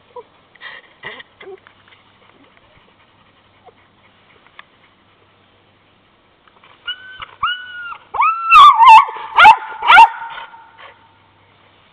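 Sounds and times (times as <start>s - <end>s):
dog yipping and yelping: 6.8s - 11.0s
dog whining: 6.9s - 9.0s.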